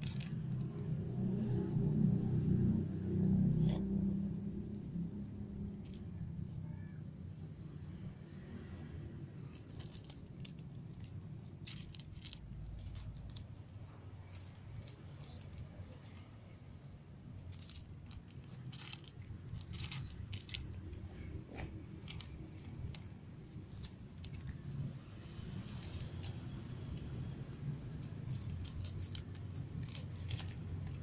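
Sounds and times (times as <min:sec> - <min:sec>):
low background rumble: 0:00.0 - 0:31.0
cat chewing dry kibble: 0:09.4 - 0:13.6, 0:17.4 - 0:31.0.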